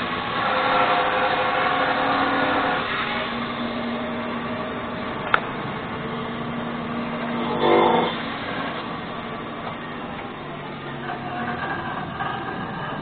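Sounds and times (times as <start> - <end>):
band saw cutting a log: 0.0 - 10.4
sharp click: 5.2 - 5.5.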